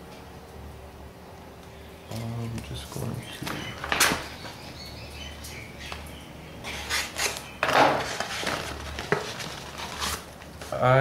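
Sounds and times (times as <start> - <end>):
paper envelope tearing: 6.7 - 10.8.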